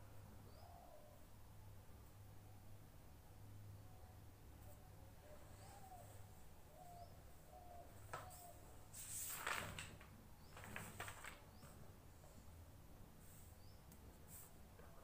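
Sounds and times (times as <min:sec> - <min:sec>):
small birds chirping: 0:05.2 - 0:08.9, 0:13.2 - 0:14.1
book page turning: 0:09.0 - 0:11.8
soft paper clicks: 0:09.2 - 0:11.8.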